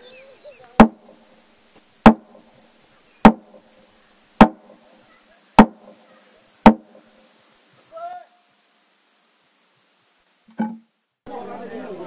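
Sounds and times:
wooden log drum struck: 0.8s - 1.2s, 2.0s - 2.4s, 3.2s - 3.6s, 4.4s - 4.8s, 5.6s - 6.0s, 6.6s - 7.0s.

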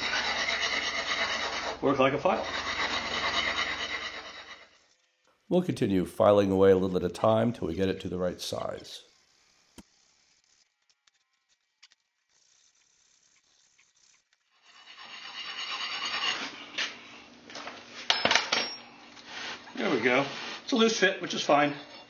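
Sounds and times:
file rasping against firebrick: 0.0s - 4.8s, 14.5s - 16.7s.

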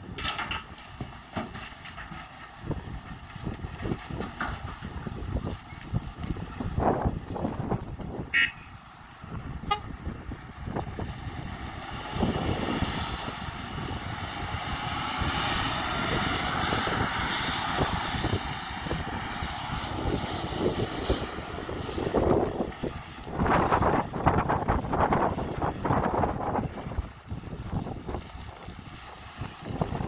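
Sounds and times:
dump truck engine pulling away: 0.0s - 30.0s
heavy diesel machinery running: 0.0s - 30.0s
wind buffeting microphone: 2.5s - 30.0s
short horn toot: 8.3s - 8.7s.

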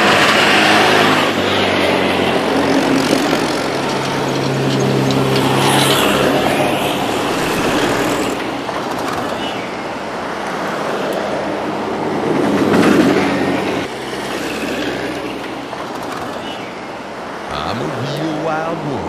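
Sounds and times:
engines running: 0.0s - 9.1s
tyres rushing on asphalt: 0.0s - 19.0s.

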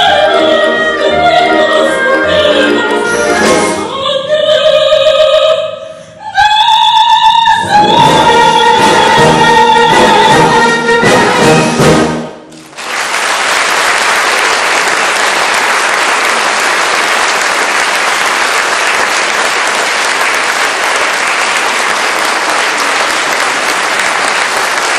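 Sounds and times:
audience applauding: 12.5s - 24.9s.

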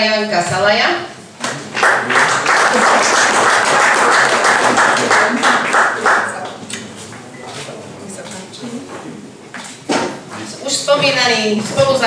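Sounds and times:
audience applauding: 1.4s - 6.6s.

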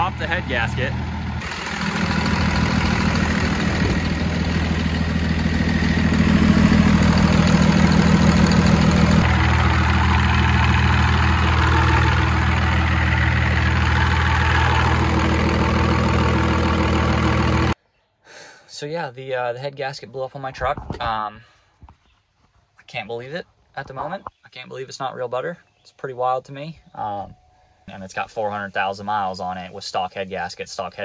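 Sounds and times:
diesel engine idling: 0.0s - 17.8s.

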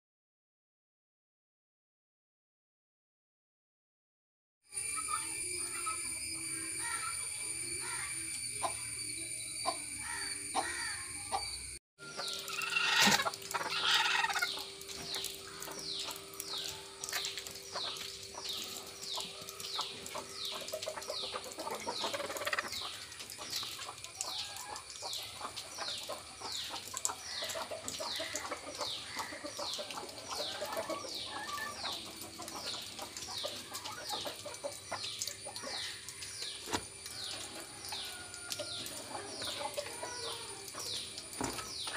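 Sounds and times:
hens clucking: 12.1s - 41.9s.

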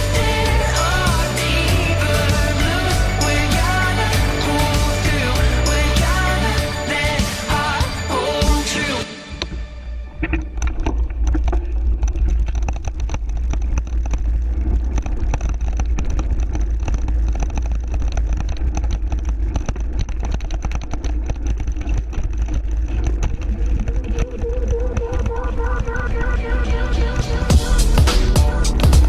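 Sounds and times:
bike rattling: 0.0s - 9.0s, 10.1s - 29.0s.

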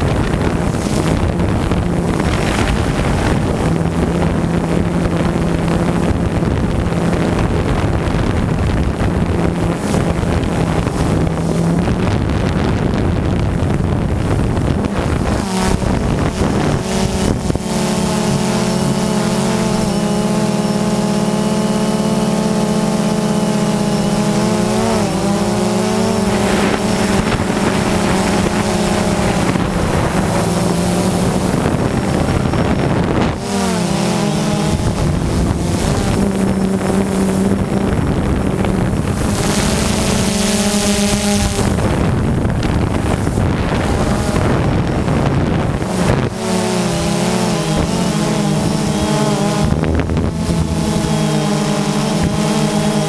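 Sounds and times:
drone propellers whining: 0.0s - 53.0s
wind noise on microphone: 0.0s - 53.0s.

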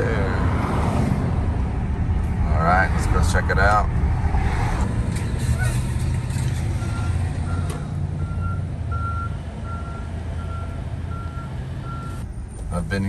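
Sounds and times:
road and tyre rumble: 0.0s - 13.0s
vehicle warning beeps: 6.8s - 12.2s.

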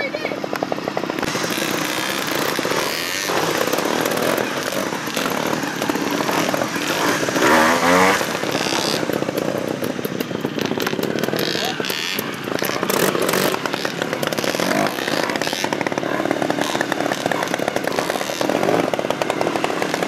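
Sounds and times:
two-stroke motorcycle engine revving: 0.0s - 20.0s.

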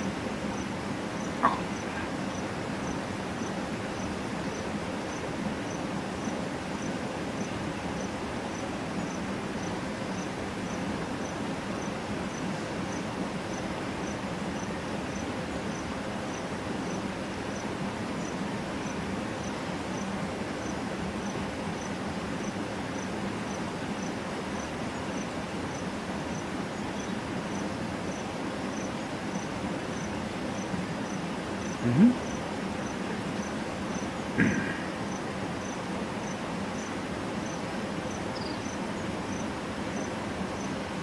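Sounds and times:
insect chirping: 0.0s - 17.6s, 18.2s - 40.7s
outdoor background hiss: 0.0s - 41.0s
low grunt: 31.8s - 32.2s.

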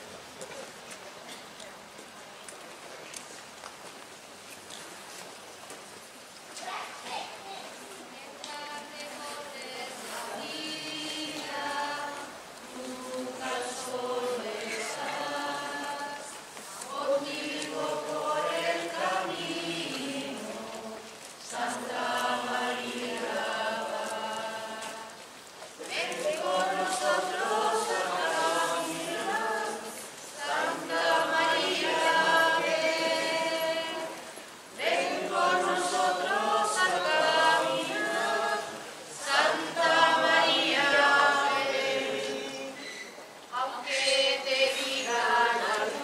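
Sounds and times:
group singing religious chant: 8.5s - 42.8s, 43.6s - 46.0s.

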